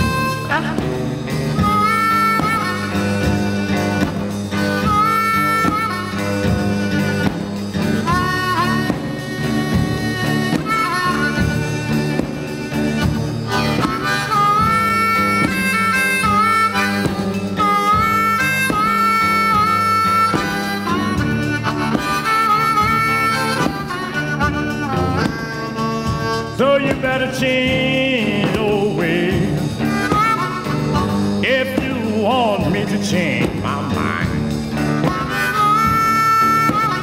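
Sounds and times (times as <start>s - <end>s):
band backing: 0.0s - 37.0s
blues harmonica solo: 0.0s - 37.0s.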